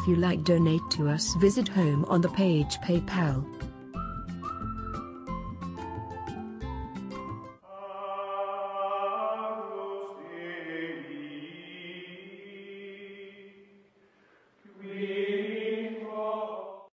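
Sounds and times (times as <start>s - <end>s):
chant-like voices holding notes: 7.6s - 13.8s, 14.6s - 16.9s.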